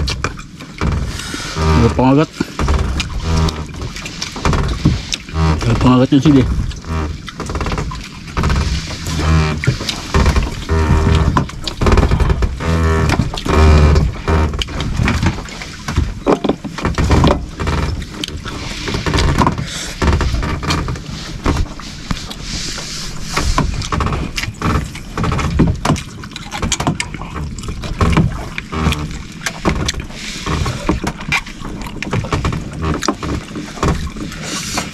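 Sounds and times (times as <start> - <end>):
irregular knocks: 0.0 - 18.0
water sloshing against boat hull: 0.0 - 34.9.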